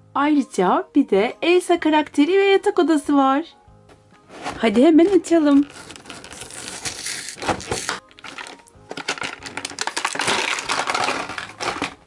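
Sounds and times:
cardboard tearing: 0:05.5 - 0:12.0
plastic packaging crinkling: 0:05.5 - 0:12.0.

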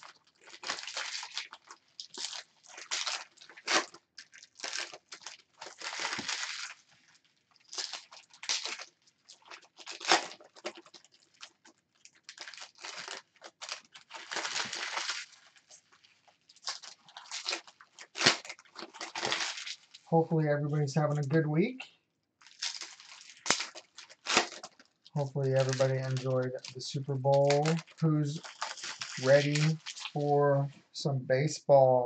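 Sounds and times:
foil wrappers tearing and crinkling: 0:00.0 - 0:20.1, 0:22.4 - 0:30.3.

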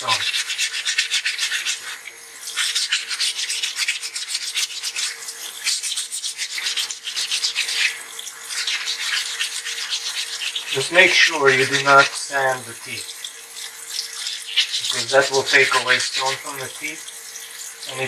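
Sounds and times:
sandpaper rasping on stone: 0:00.0 - 0:12.0.

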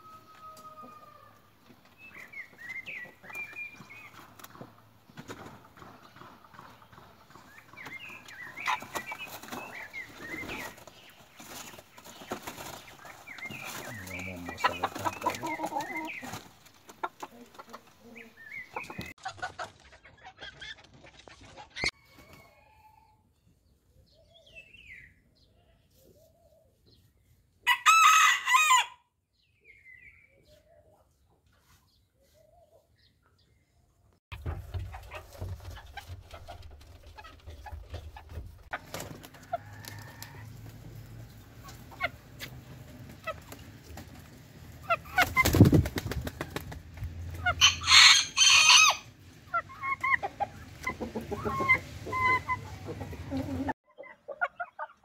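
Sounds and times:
rooster crowing: 0:00.0 - 0:01.5, 0:27.7 - 0:29.0, 0:47.6 - 0:49.1
chickens clucking: 0:00.0 - 0:23.0, 0:34.3 - 0:55.0.

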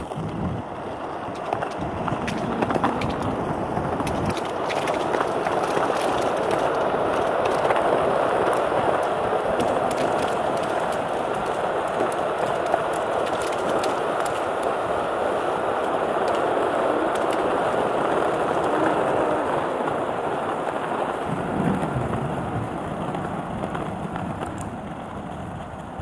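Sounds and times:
small grit clicks: 0:00.0 - 0:20.6
skateboard wheels rolling on asphalt: 0:00.0 - 0:26.0.

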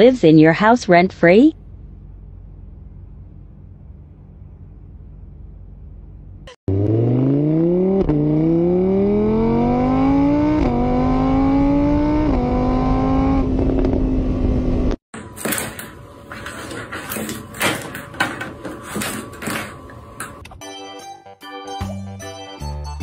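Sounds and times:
motorbike engine revving: 0:06.4 - 0:15.0.

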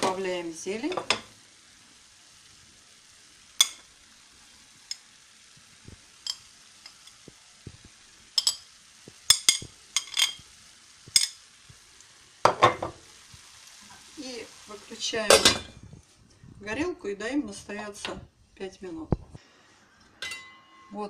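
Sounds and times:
metal utensil clinking on pan: 0:03.6 - 0:03.9, 0:06.2 - 0:07.0, 0:08.4 - 0:08.7, 0:09.3 - 0:10.4, 0:20.2 - 0:21.0.

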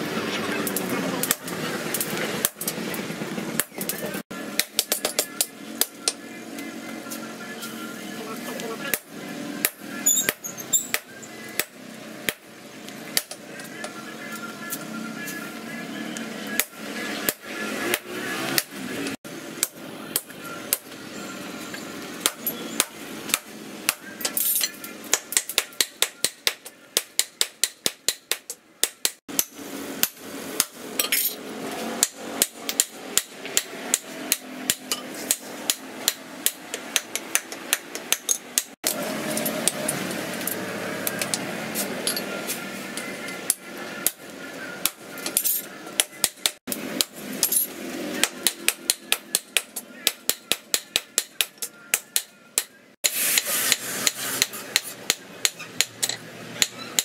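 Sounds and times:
hammer striking hot steel on anvil: 0:22.2 - 0:31.4, 0:32.0 - 0:41.4, 0:44.8 - 0:57.0.

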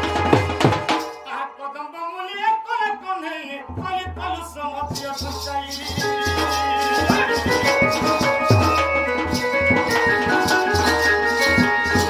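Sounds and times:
barrel drum beating: 0:00.0 - 0:01.1, 0:06.0 - 0:12.0
high rattling percussion: 0:00.0 - 0:01.3, 0:03.8 - 0:12.0
held melody line: 0:04.0 - 0:12.0.

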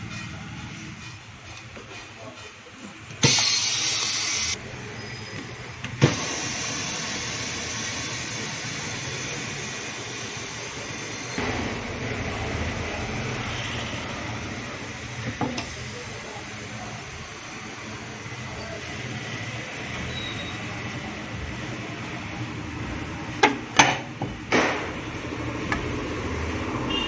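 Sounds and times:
hissing air burst: 0:03.2 - 0:04.6, 0:06.0 - 0:14.1.

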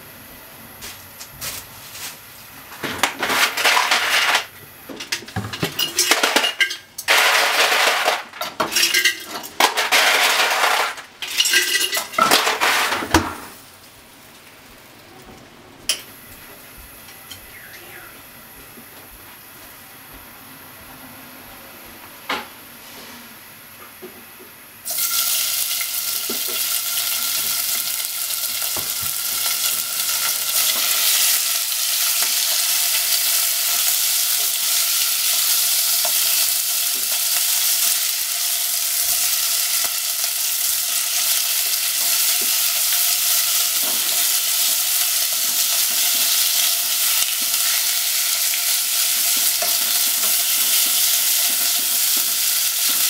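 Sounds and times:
pork sizzling in hot oil: 0:03.0 - 0:14.9, 0:24.8 - 0:53.0.

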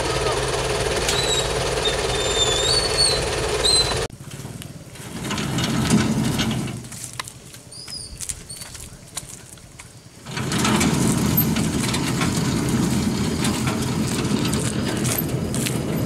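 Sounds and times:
diesel truck engine running: 0:00.0 - 0:04.1, 0:10.3 - 0:16.0.

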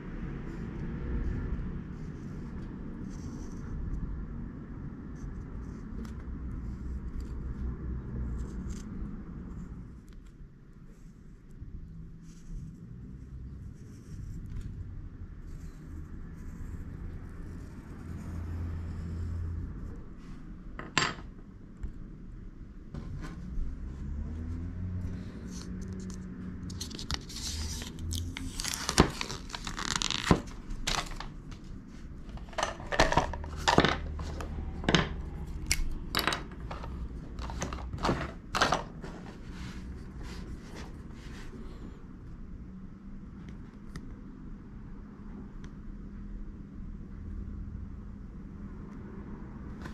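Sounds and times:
paper and tape peeling off: 0:26.7 - 0:31.3
tools clicking on wooden table: 0:32.4 - 0:38.8.

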